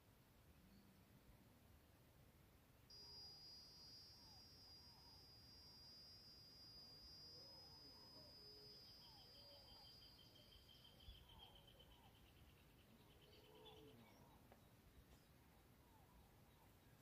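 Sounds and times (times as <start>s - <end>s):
fast insect trill: 2.9s - 13.8s
high insect whine: 2.9s - 13.8s
distant bird chirps: 2.9s - 17.0s.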